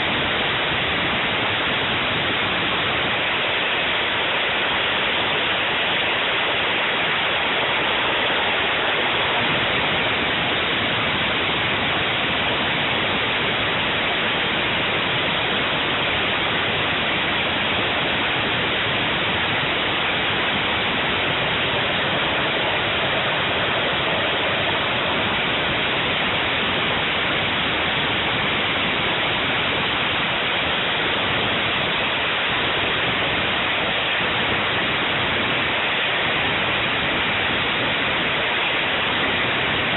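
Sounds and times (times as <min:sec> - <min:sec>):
jet engine running: 0:00.0 - 0:39.9.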